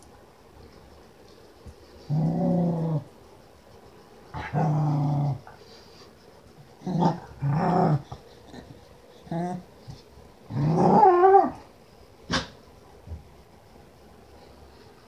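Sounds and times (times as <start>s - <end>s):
dog play-growling: 2.1s - 3.1s, 4.3s - 5.6s, 6.7s - 11.6s.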